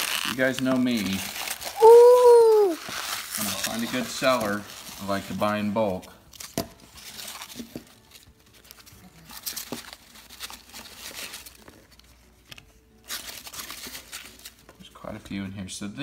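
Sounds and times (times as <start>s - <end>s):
packing peanuts and paper rustling: 0.0s - 15.1s.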